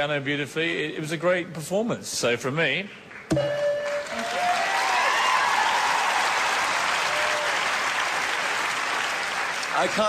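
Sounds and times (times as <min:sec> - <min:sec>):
audience applauding: 0:03.0 - 0:10.0
people cheering: 0:03.8 - 0:10.0.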